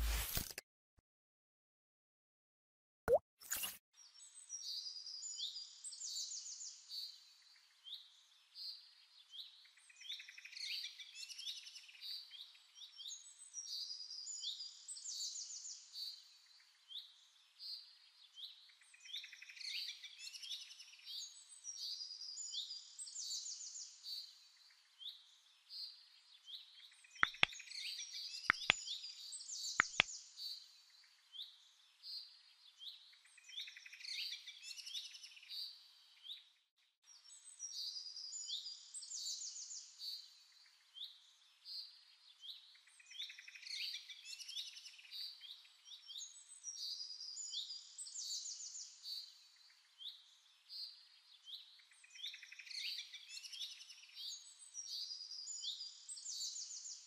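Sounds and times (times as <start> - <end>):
sharp double clicks: 27.2 - 27.5, 28.5 - 28.8, 29.8 - 30.0.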